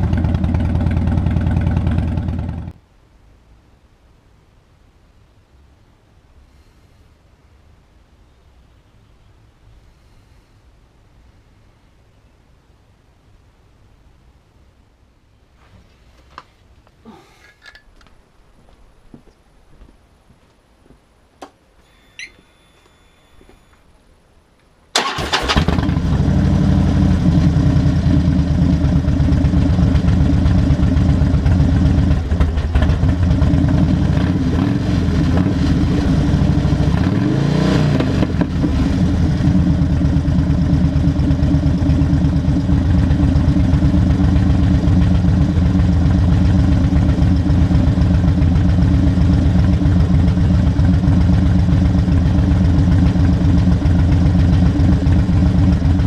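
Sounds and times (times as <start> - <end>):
motorcycle engine revving and idling: 0.0 - 2.8, 25.3 - 56.0.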